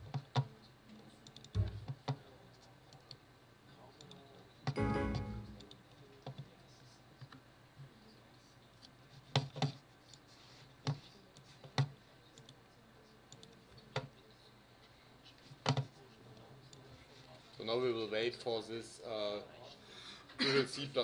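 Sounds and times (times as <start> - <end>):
computer mouse clicking: 1.2 - 2.2.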